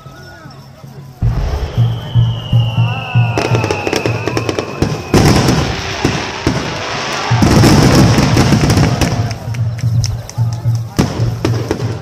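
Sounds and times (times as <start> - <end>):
music playing: 0.0 - 12.0
falling high whistle: 1.2 - 7.9
fireworks bursting with crackling: 1.2 - 12.0.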